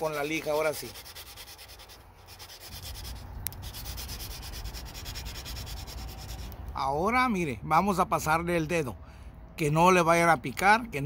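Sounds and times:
sandpaper rubbing on metal rim: 0.0s - 6.6s.

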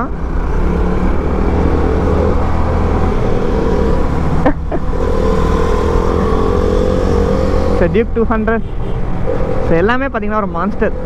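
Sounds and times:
motorcycle engine accelerating: 0.0s - 8.2s.

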